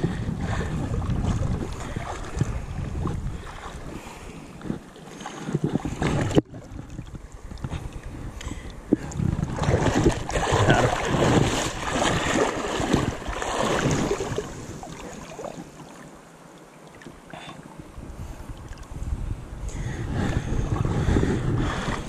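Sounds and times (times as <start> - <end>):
wind buffeting microphone: 0.0 - 15.7, 17.8 - 22.0
water splashing around wading legs: 0.4 - 4.0, 4.6 - 8.1, 9.0 - 17.3.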